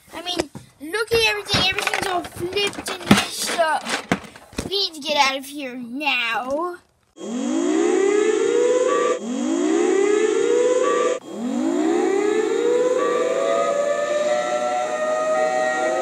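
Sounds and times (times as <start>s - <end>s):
siren wailing: 7.2s - 16.0s.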